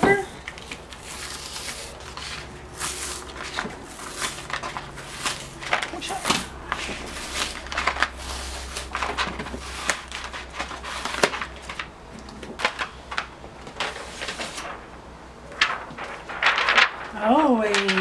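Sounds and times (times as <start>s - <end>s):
plastic sheets crackling and rustling: 0.0s - 18.0s.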